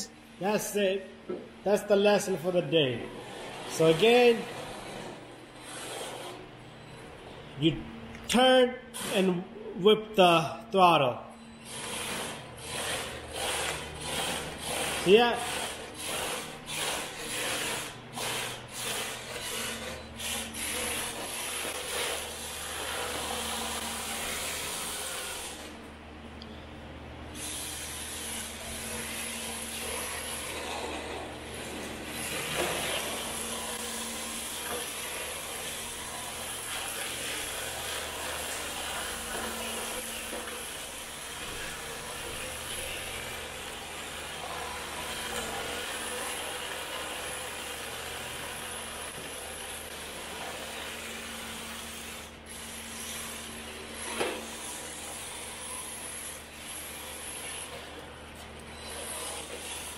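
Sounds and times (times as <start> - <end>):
toy car tyres scrubbing concrete: 11.9 - 25.7.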